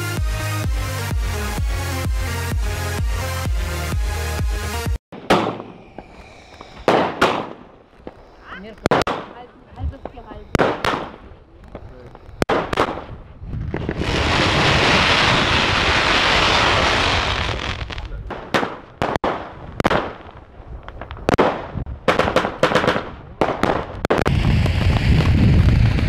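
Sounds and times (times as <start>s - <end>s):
fireworks bangs and pops: 5.1s - 26.0s
fireworks crackling hiss: 5.4s - 9.3s, 9.9s - 18.3s, 24.1s - 26.0s
firework fountain rushing roar: 24.3s - 26.0s.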